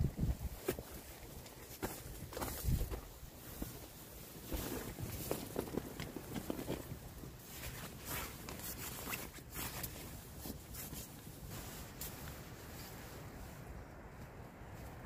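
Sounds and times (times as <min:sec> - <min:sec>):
sleeping bag fabric rustling: 0:00.4 - 0:13.6.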